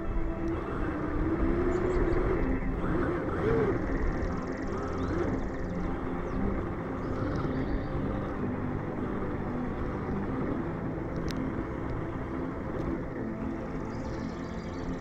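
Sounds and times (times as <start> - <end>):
electric toy truck motor: 0.0 - 15.0.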